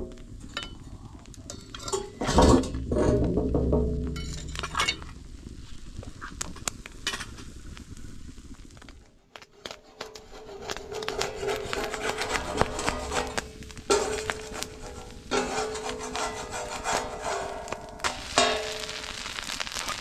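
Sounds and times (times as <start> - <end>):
utensils clinking on cookware: 1.5 - 2.7.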